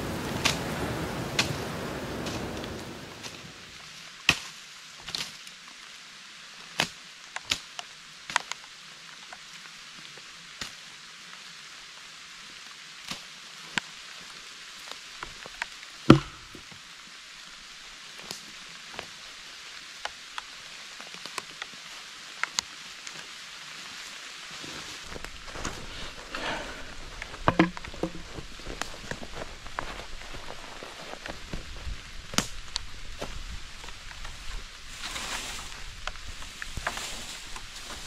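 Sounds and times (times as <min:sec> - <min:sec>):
steady rain hiss: 0:00.0 - 0:38.0
heavier knock: 0:16.1 - 0:16.6
heavy drops tapping: 0:16.1 - 0:16.6, 0:27.4 - 0:28.4.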